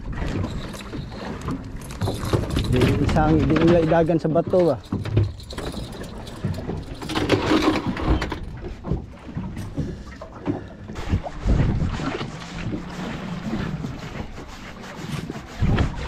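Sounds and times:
wind on microphone: 0.0s - 4.1s, 5.0s - 16.0s
water around boat: 0.0s - 16.0s.

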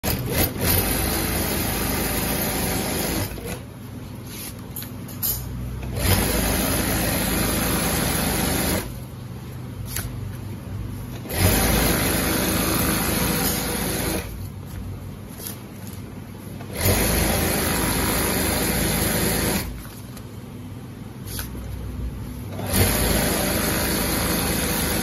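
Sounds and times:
sewing machine stitching: 0.0s - 3.7s, 5.8s - 9.0s, 11.1s - 14.4s, 16.7s - 19.8s, 22.5s - 25.0s.

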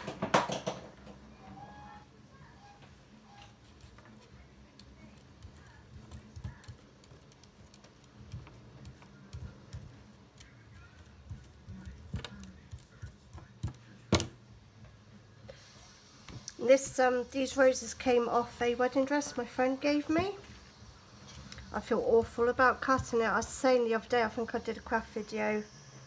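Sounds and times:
paper taps and rustles: 5.4s - 14.4s.

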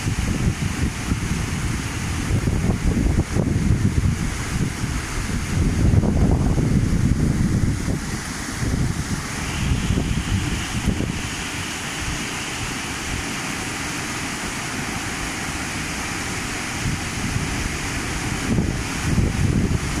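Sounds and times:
wind buffeting microphone: 0.0s - 12.2s, 16.4s - 20.0s
rushing flood torrent: 0.0s - 20.0s.

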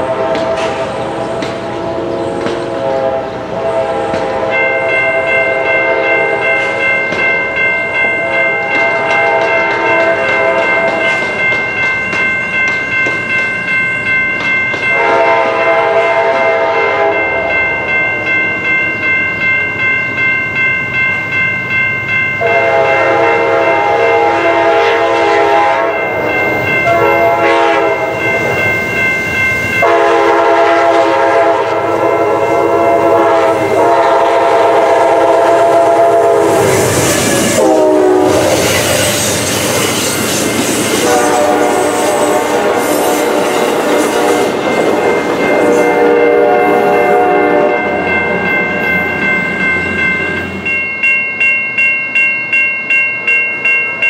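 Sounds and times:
train air horn blasts: 0.0s - 6.8s, 8.2s - 11.1s, 14.9s - 17.5s, 22.4s - 28.6s, 29.8s - 39.5s, 40.9s - 48.0s.

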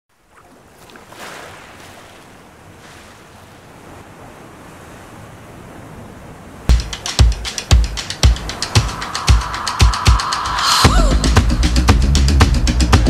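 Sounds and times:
ocean waves washing ashore: 0.2s - 12.0s.

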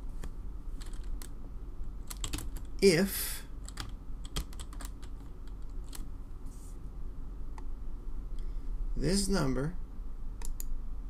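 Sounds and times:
faint steady hum: 0.0s - 11.0s
computer keyboard keystrokes: 0.8s - 1.3s, 2.1s - 2.7s, 3.6s - 6.1s, 10.4s - 10.7s.

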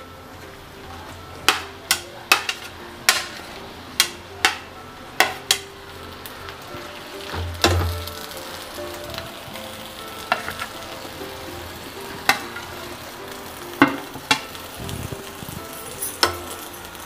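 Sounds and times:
spoon scraping and stirring in pan: 1.4s - 5.7s.

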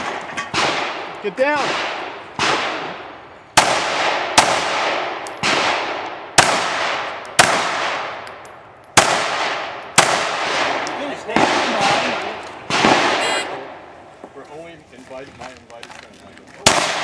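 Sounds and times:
handgun shots with echo: 16.6s - 17.0s.

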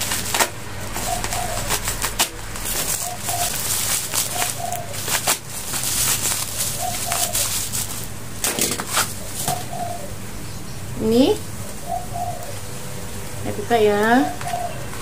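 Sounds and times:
plastic packaging rustling: 0.0s - 9.7s
dove cooing: 0.0s - 15.0s.

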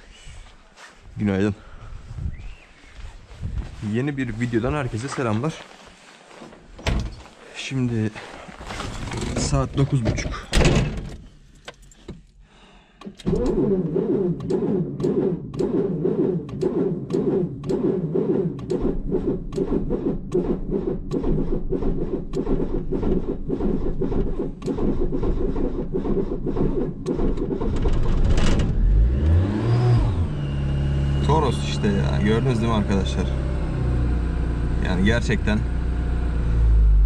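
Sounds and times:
engine cranking on starter: 13.0s - 33.5s
engine running: 13.3s - 37.0s.

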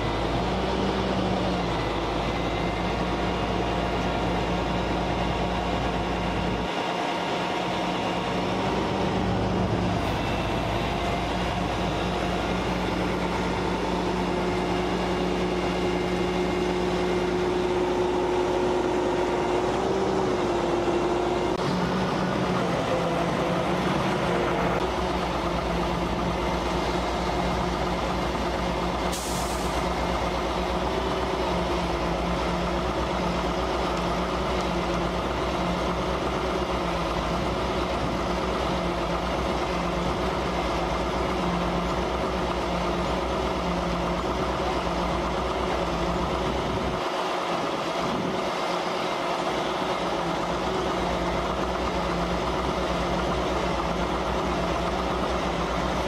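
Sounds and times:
diesel truck engine running: 0.0s - 56.0s
short hiss: 29.1s - 29.8s.

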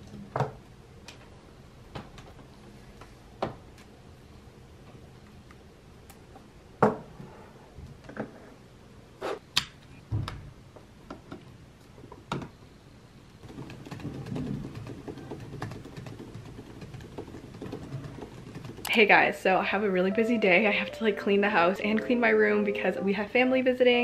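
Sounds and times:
muffled keyboard typing: 13.4s - 19.2s.

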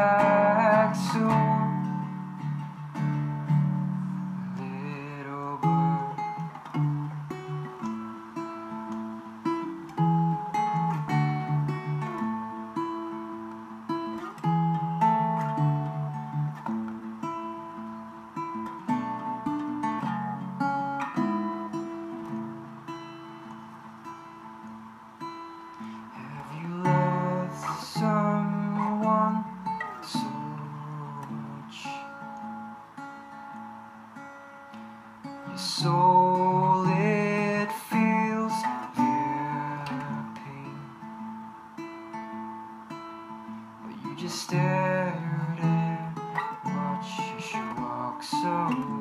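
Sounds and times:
man singing softly: 0.0s - 2.8s, 3.6s - 8.1s, 25.8s - 32.6s, 35.4s - 41.5s, 43.8s - 49.0s
acoustic guitar chords: 0.0s - 49.0s.

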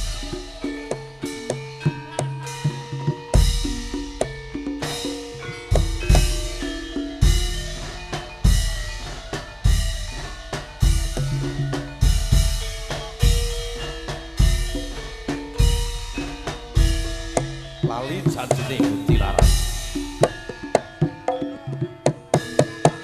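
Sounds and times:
heavy drum strokes: 0.0s - 21.3s
ringing metallophone tones: 0.0s - 23.0s.

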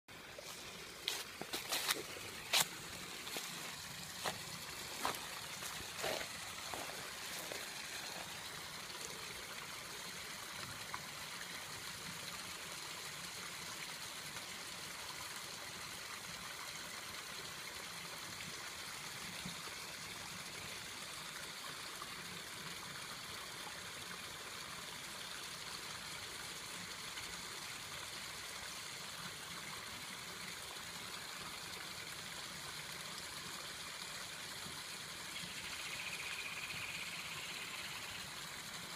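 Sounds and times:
trickling running water: 0.1s - 38.9s
footsteps crunching on gravel: 0.4s - 8.3s.

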